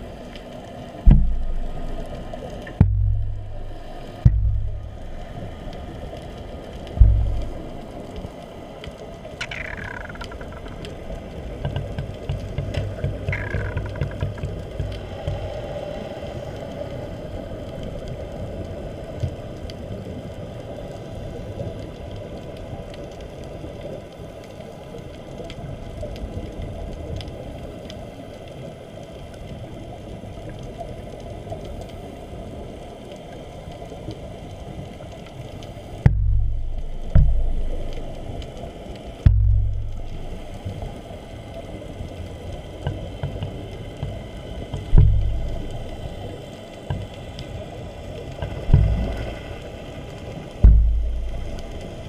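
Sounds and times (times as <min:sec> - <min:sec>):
muffled underwater water noise: 0:00.0 - 0:52.0
faint ticks: 0:00.1 - 0:52.0
deep loud thumps: 0:01.1 - 0:05.4, 0:07.0 - 0:07.9, 0:36.1 - 0:38.3, 0:39.3 - 0:40.5, 0:44.9 - 0:45.9, 0:48.7 - 0:49.1, 0:50.6 - 0:51.7.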